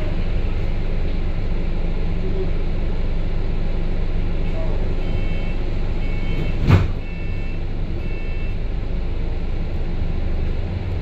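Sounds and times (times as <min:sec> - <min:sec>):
bus engine and road rumble: 0:00.0 - 0:11.0
two-tone electronic beep: 0:05.1 - 0:08.6.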